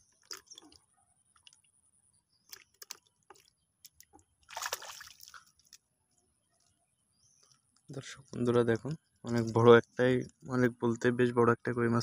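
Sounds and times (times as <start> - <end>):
shallow water splashing: 2.4 - 5.9.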